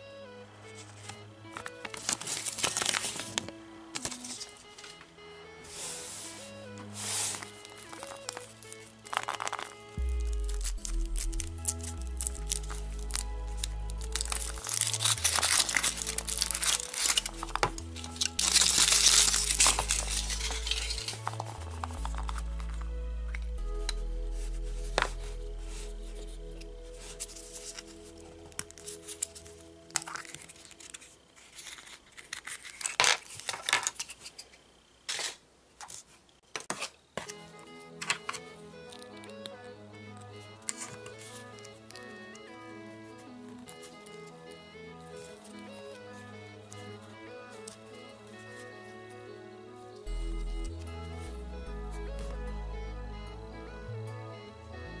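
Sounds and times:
foil wrapper crinkling and tearing: 0:01.6 - 0:04.9, 0:07.3 - 0:22.8, 0:27.0 - 0:34.4
plastic parts clicking: 0:07.4 - 0:09.9, 0:28.5 - 0:37.4
background music with bass line: 0:09.7 - 0:29.9, 0:38.4 - 0:55.0.

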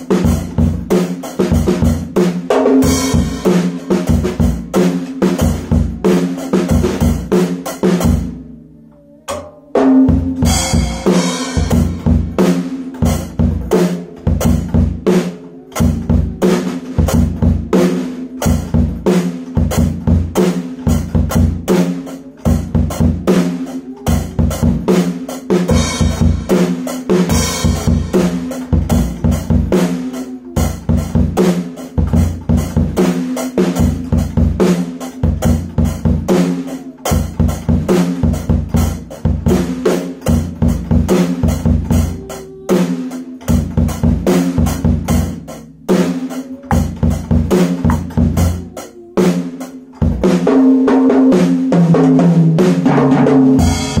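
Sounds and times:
drum kit playing: 0:00.0 - 0:54.0.

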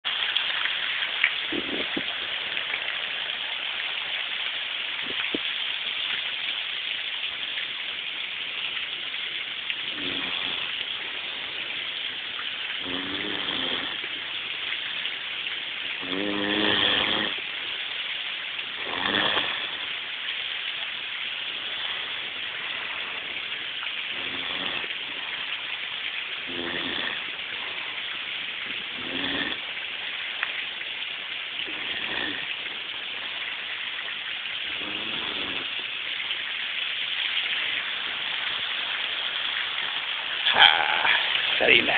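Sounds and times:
steady hiss: 0:00.1 - 0:41.9
person groaning: 0:40.5 - 0:41.9.

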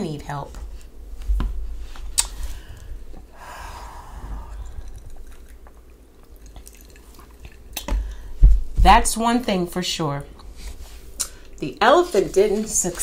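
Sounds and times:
soft mouth sounds: 0:02.1 - 0:08.2
person sipping a drink: 0:02.2 - 0:08.3.

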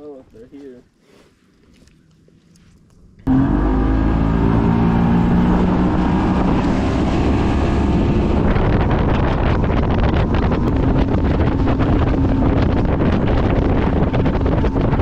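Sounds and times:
boat motor running: 0:03.3 - 0:15.0
wind buffeting microphone: 0:04.1 - 0:15.0.

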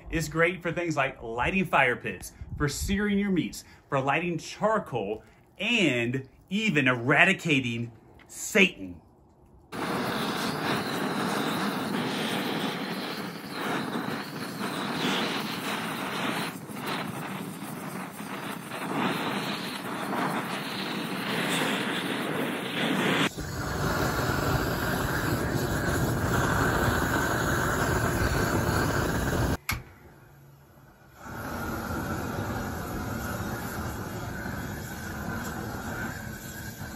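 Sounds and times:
propane torch flame jet: 0:09.6 - 0:36.9.

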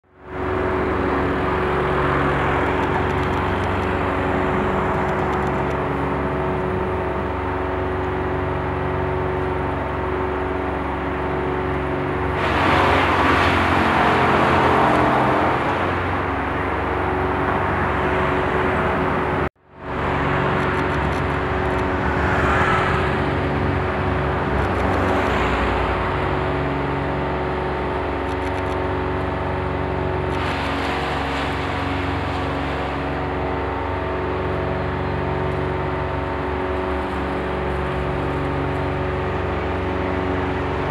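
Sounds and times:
motor engine running: 0:00.1 - 0:40.9.

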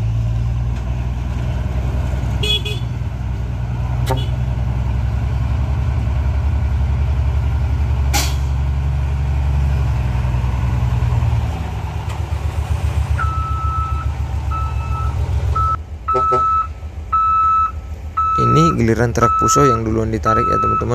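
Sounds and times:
diesel truck engine running: 0:00.0 - 0:20.9
reversing alarm beeping: 0:13.2 - 0:20.9.

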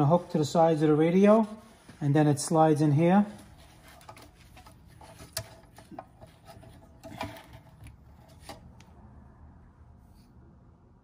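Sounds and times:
plastic parts rubbing and scraping: 0:02.8 - 0:08.9.

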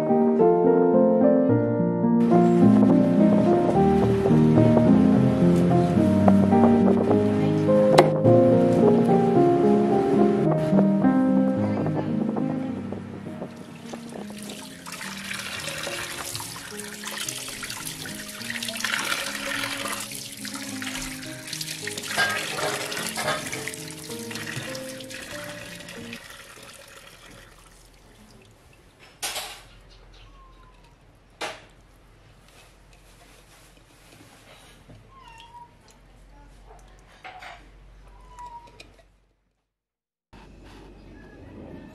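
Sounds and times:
slow background music: 0:00.0 - 0:26.3
tap water splashing: 0:13.4 - 0:28.9
cat meowing: 0:30.2 - 0:31.0, 0:35.1 - 0:35.9, 0:38.0 - 0:38.9.

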